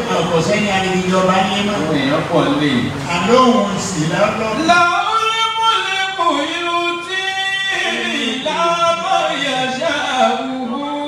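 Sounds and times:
man chanting into microphone: 0:04.5 - 0:11.0.

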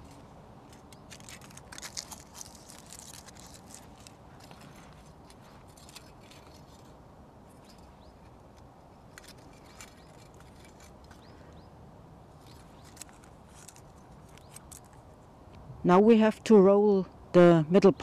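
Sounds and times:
aluminium foil crinkling: 0:00.0 - 0:11.3, 0:12.3 - 0:15.2
low steady background noise: 0:00.0 - 0:18.0.

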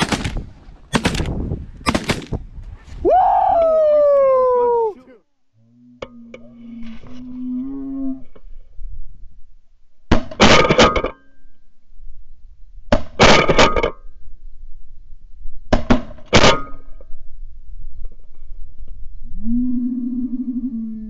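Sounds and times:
shotgun volleys: 0:00.0 - 0:02.4.

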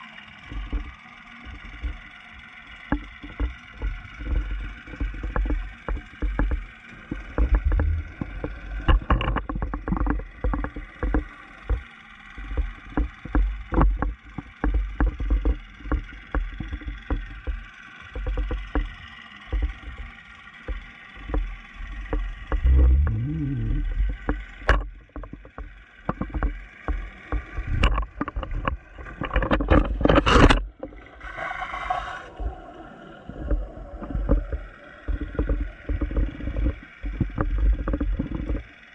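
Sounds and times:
muffled underwater rumble: 0:00.0 - 0:38.9
knocks and clicks: 0:04.3 - 0:11.8, 0:22.5 - 0:31.0.

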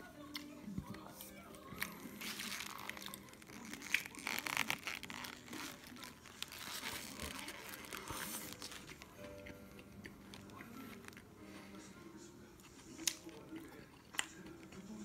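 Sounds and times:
paper wrapper crinkling: 0:01.6 - 0:09.2
crunching of eating fried food: 0:01.7 - 0:11.3.

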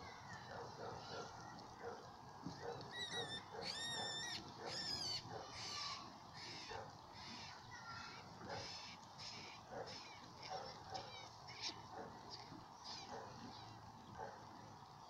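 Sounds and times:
rabbit screaming: 0:02.9 - 0:10.3.

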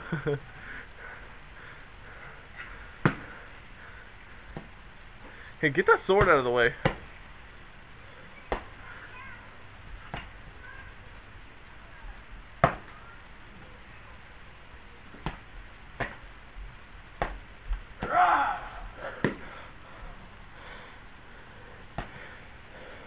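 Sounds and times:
padded weapons thwacking: 0:03.0 - 0:03.3, 0:12.6 - 0:13.0, 0:19.2 - 0:19.4.

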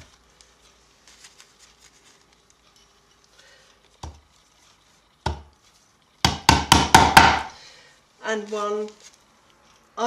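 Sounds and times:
hammer knocking tacks into wood: 0:05.2 - 0:05.5, 0:06.2 - 0:07.6.

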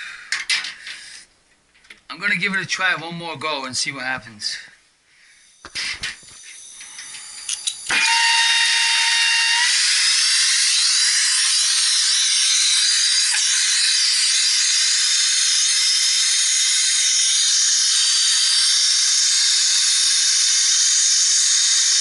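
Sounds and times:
torch whistling: 0:05.7 - 0:22.0.

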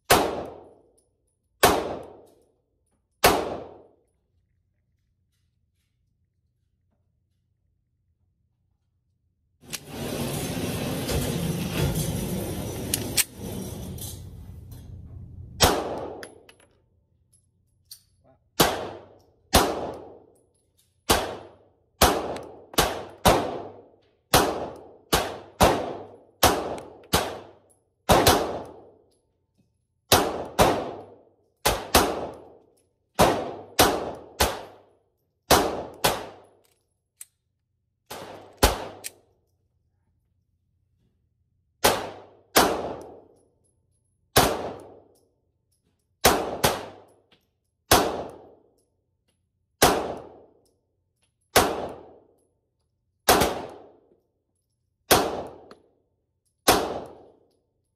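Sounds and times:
pistol shots: 0:00.0 - 0:00.7, 0:01.6 - 0:02.2, 0:03.2 - 0:03.9, 0:15.6 - 0:16.4, 0:18.5 - 0:20.2, 0:21.1 - 0:28.8, 0:30.1 - 0:32.5, 0:33.2 - 0:34.8, 0:35.5 - 0:36.5, 0:38.1 - 0:39.2, 0:41.8 - 0:43.3, 0:44.3 - 0:45.0, 0:46.2 - 0:47.1, 0:47.9 - 0:48.6, 0:49.8 - 0:50.5, 0:51.5 - 0:52.2, 0:53.2 - 0:54.0, 0:55.0 - 0:55.7, 0:56.6 - 0:57.3.

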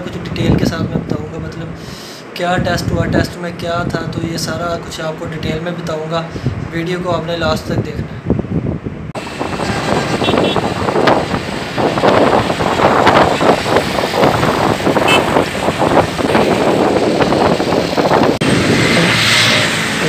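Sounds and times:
wind on microphone: 0:00.0 - 0:01.5, 0:02.6 - 0:04.8, 0:06.3 - 0:20.0
motorcycle engines running: 0:09.2 - 0:20.0.

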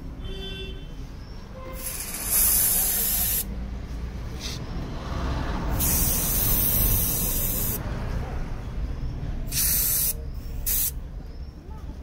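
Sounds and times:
aerosol spray hissing: 0:01.8 - 0:03.5, 0:05.7 - 0:07.8, 0:09.5 - 0:11.0.

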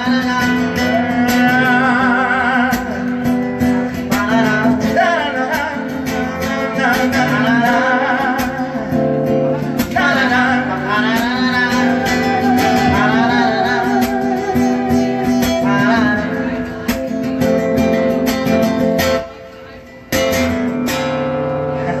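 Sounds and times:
man singing: 0:00.0 - 0:17.6, 0:21.5 - 0:22.0
strummed acoustic guitar: 0:00.0 - 0:22.0.

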